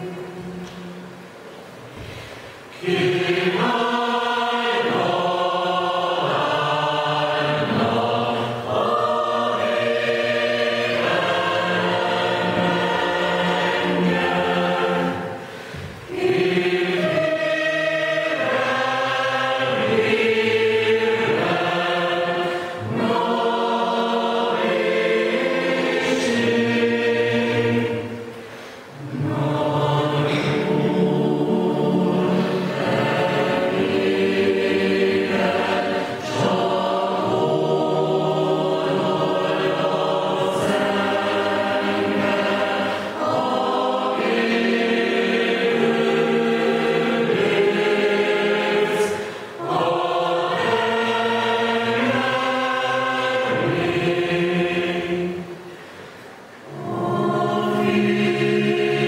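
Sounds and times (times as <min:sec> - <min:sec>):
mixed choir singing a hymn: 0:00.0 - 0:59.0.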